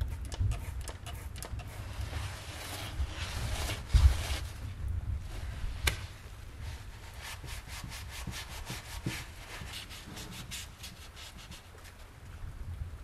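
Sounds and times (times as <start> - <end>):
paper towel rubbing: 0.6 - 4.6, 6.6 - 11.8.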